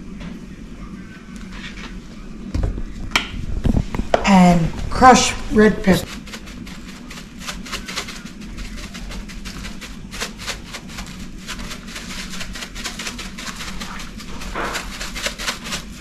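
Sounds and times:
low steady hum: 0.0s - 16.0s
spice jar rattling: 6.0s - 16.0s.

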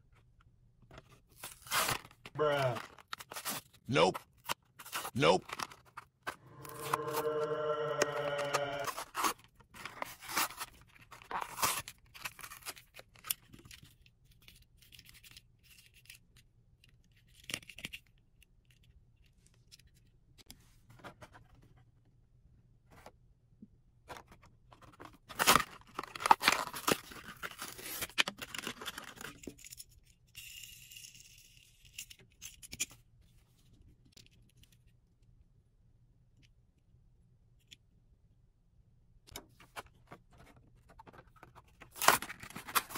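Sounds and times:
plastic crinkling and scraping: 0.9s - 14.0s, 24.1s - 29.6s, 39.4s - 42.9s
cardboard tearing: 1.4s - 3.7s, 6.6s - 12.8s, 25.3s - 28.9s.

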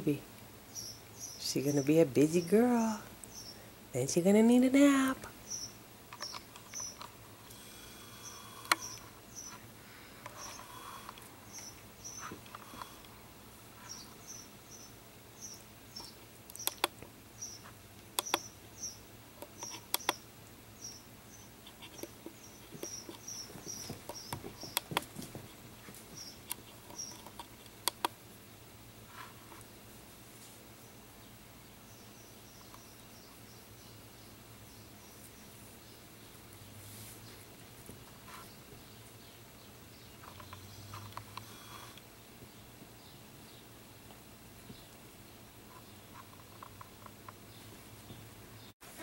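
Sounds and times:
sharp little clicks: 8.2s - 9.1s, 16.0s - 17.1s, 18.0s - 18.5s, 19.4s - 20.2s, 26.4s - 28.2s
soft rustling on carpet: 29.1s - 30.7s, 36.8s - 38.6s.

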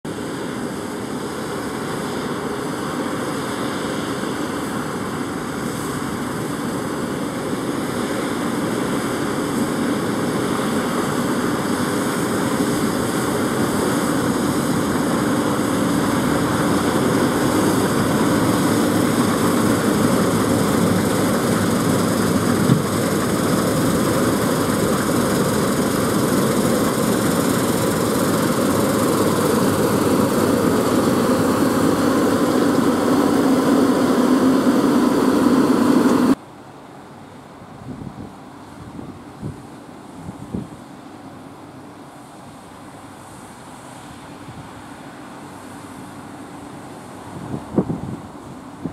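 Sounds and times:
combine harvester drone: 0.1s - 36.4s
tractor engine: 7.4s - 36.4s.

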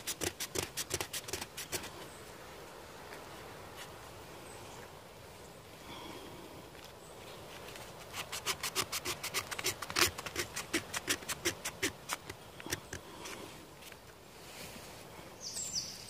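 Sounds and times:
knife scraping bark: 0.0s - 2.0s, 7.8s - 13.5s.

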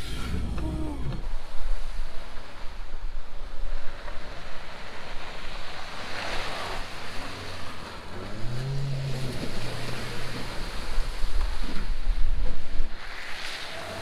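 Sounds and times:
wind on microphone: 0.0s - 7.1s
car tyres on muddy track: 1.9s - 14.0s.

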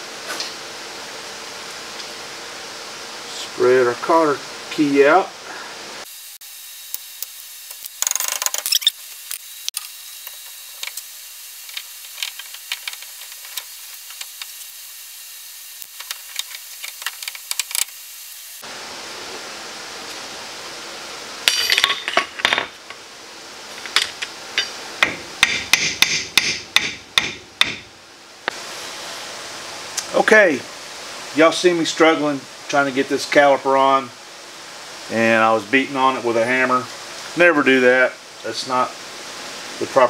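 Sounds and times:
hand tools clicking and tapping: 6.9s - 14.6s, 23.8s - 27.8s
hammer striking metal caliper: 24.0s - 27.8s.

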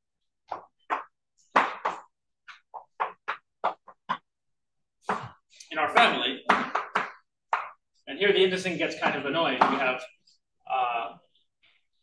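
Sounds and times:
chalk tapping and writing on blackboard: 5.0s - 8.0s.

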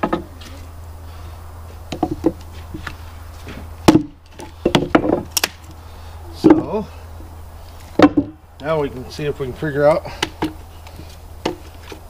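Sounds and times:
axe chopping wood: 1.9s - 5.6s, 8.0s - 8.4s, 10.1s - 10.6s.

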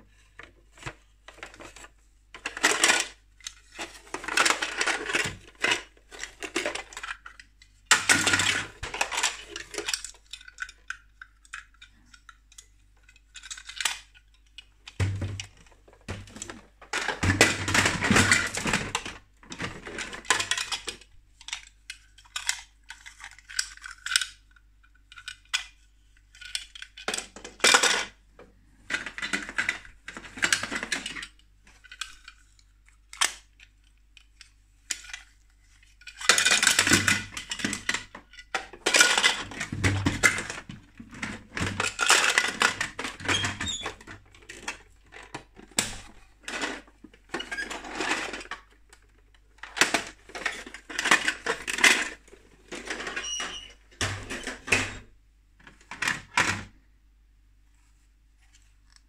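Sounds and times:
plastic toy pieces clattering: 0.7s - 28.2s, 28.8s - 55.1s.

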